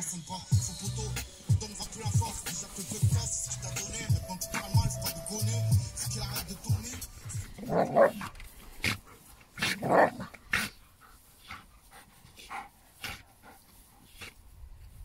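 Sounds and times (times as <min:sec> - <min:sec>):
dogs growling: 0:06.8 - 0:13.6.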